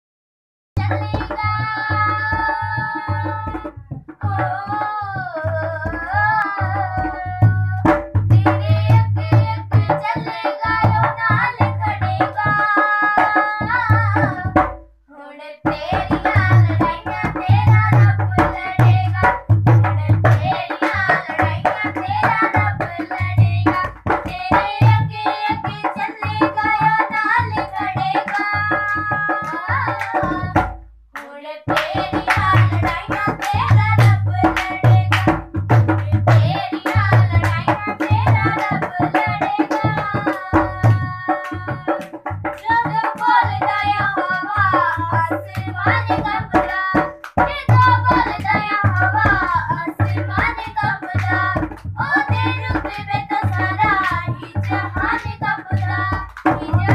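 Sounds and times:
tabla drum strokes: 0:00.8 - 0:14.9, 0:15.6 - 0:30.9, 0:31.7 - 0:56.9
person singing worship song: 0:36.0 - 0:56.9.

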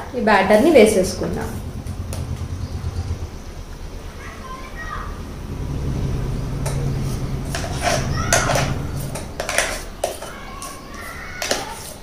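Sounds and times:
spoon scraping metal jar: 0:07.5 - 0:12.0.

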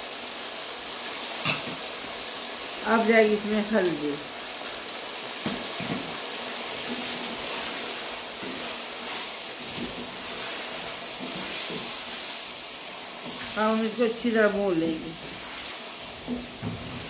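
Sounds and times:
meat sizzling in hot oil: 0:00.0 - 0:17.0
wooden spoon scraping a pot: 0:06.8 - 0:12.3.

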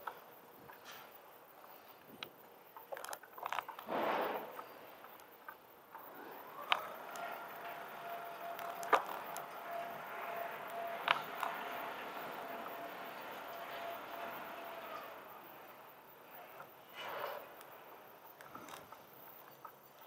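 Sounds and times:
bicycle rattling over pavement: 0:06.0 - 0:16.9.

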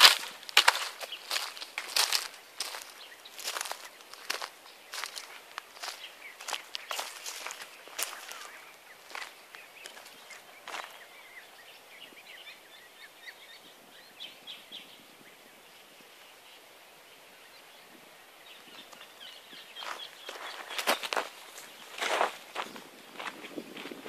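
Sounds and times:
footsteps on dry dirt: 0:00.0 - 0:11.6, 0:18.4 - 0:24.0
small birds chirping: 0:00.0 - 0:24.0.

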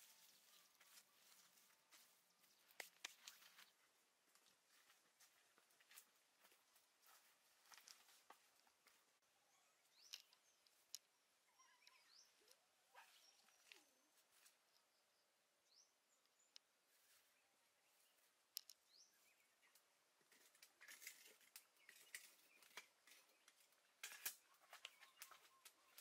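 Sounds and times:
faint bird chirps: 0:09.2 - 0:26.0.

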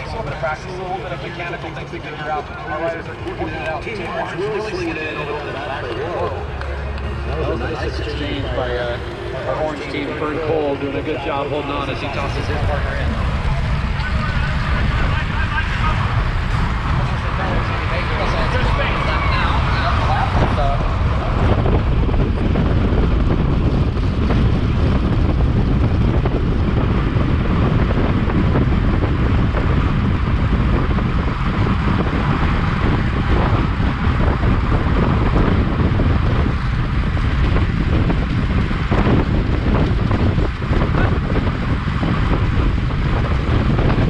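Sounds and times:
wind buffeting microphone: 0:00.0 - 0:44.0.

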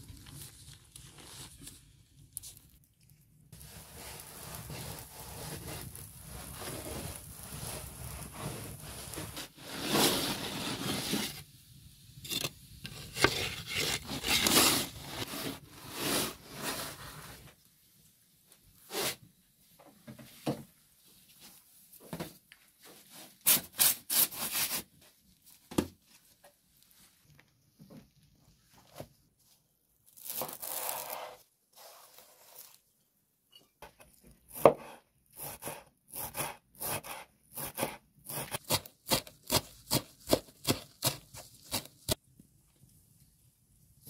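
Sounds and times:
wooden peel scraping oven floor: 0:03.6 - 0:11.4, 0:12.3 - 0:17.2.

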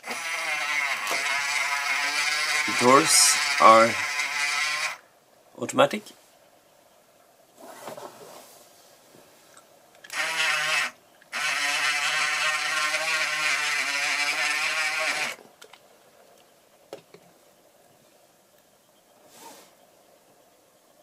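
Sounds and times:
small electric motor whining: 0:00.0 - 0:05.0, 0:10.1 - 0:15.4.

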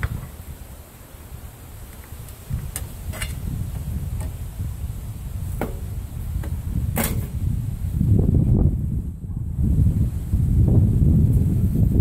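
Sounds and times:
low rumble: 0:03.6 - 0:12.0.

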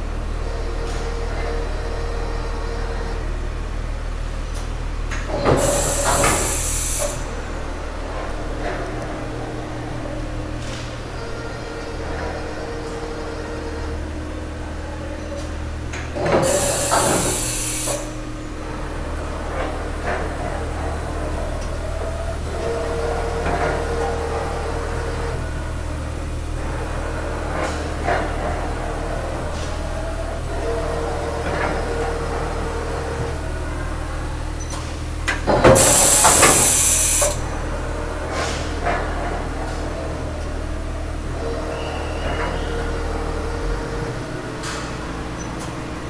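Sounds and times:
machining center humming: 0:00.0 - 0:46.0
compressed air hiss: 0:05.6 - 0:07.2, 0:16.4 - 0:18.2, 0:35.8 - 0:37.4
mechanical clunks: 0:35.3 - 0:37.4
steady tone in hum: 0:35.8 - 0:38.3.

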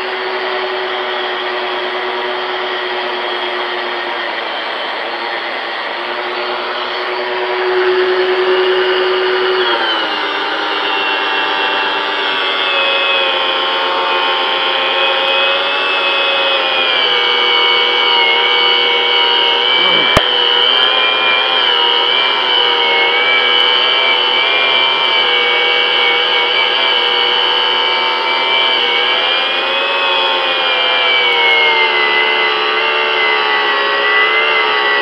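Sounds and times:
angle grinder motor whine: 0:00.0 - 0:35.0.

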